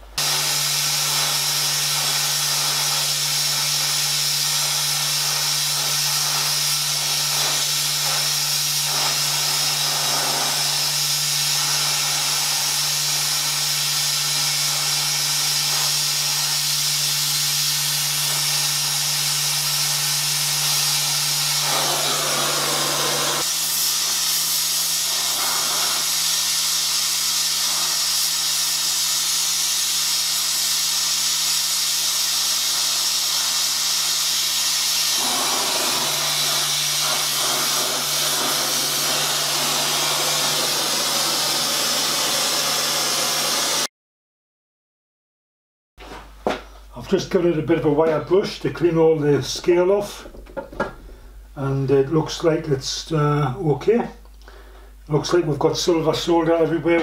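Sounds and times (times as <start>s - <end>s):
gas torch flame hissing: 0.0s - 43.9s.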